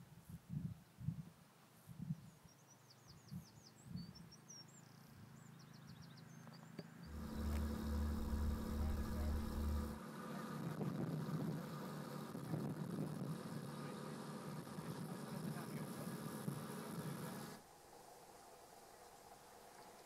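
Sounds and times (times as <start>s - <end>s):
small bird singing: 2.0s - 10.0s
motor engine throbbing: 7.1s - 15.6s.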